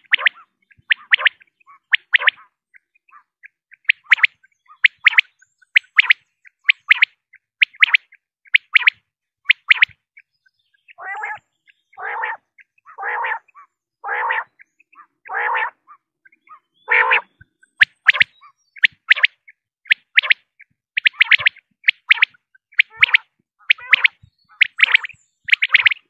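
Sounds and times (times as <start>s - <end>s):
lower harsh bird calls: 0.0s - 8.8s, 10.2s - 26.0s
quail calling: 0.0s - 10.0s, 10.7s - 26.0s.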